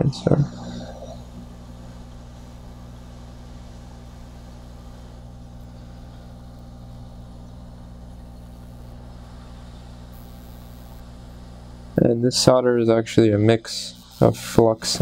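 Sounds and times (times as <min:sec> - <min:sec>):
low hum with hiss: 0:00.0 - 0:15.0.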